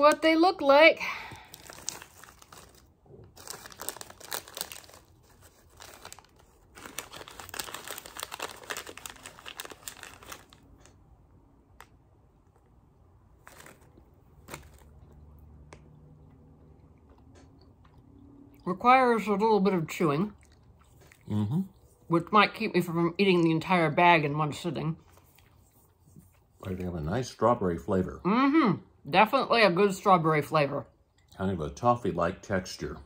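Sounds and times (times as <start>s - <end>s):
plastic candy bag crinkling: 1.3s - 11.0s, 13.4s - 15.2s.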